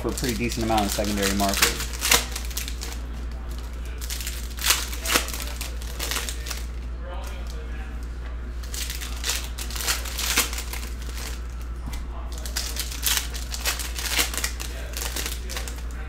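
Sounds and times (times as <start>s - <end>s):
foil wrappers crinkling and tearing: 0.0s - 7.9s, 8.5s - 16.0s.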